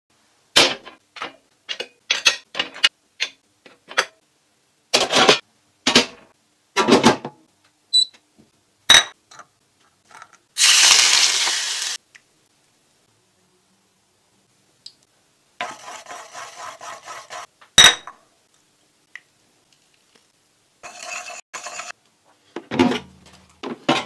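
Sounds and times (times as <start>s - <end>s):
plates and steamer clinking: 20.8s - 22.0s.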